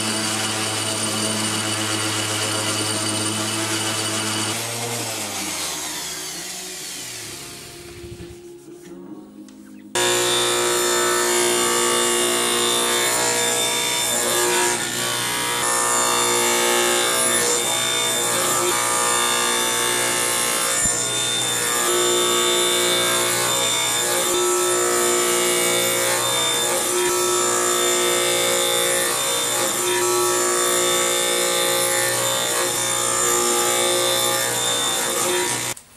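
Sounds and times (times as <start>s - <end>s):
table saw cutting wood: 0.0s - 8.7s, 10.0s - 35.8s
background music: 4.4s - 14.3s.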